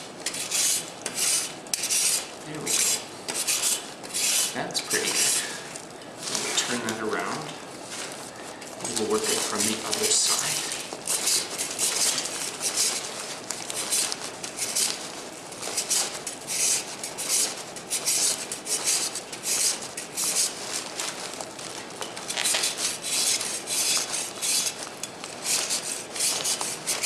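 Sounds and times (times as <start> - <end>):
rasp scraping plaster: 0.2 - 5.5, 8.9 - 13.2, 13.8 - 15.0, 15.7 - 21.0, 22.3 - 27.0.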